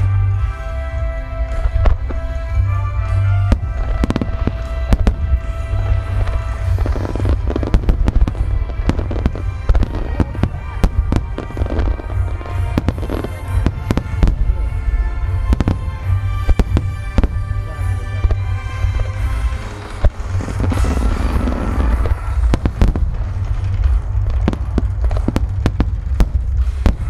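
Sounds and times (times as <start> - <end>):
deep rumble: 0.0 - 27.0
fireworks bangs: 0.0 - 27.0
music: 0.0 - 27.0.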